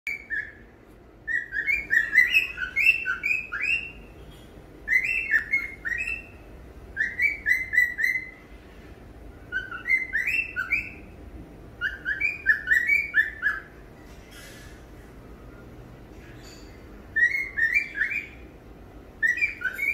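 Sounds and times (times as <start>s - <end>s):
cockatiel whistling: 0.1s - 0.6s, 1.2s - 4.1s, 4.8s - 8.4s, 9.5s - 11.2s, 11.8s - 13.8s, 16.4s - 18.4s, 19.2s - 19.9s.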